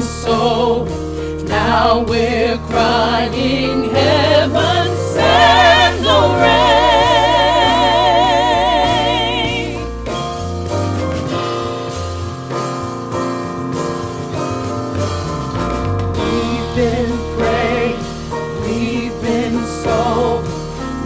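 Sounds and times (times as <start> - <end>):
gospel vocal ensemble singing: 0.0 - 10.4, 16.2 - 21.0
band with drums keyboard and bass: 0.0 - 21.0.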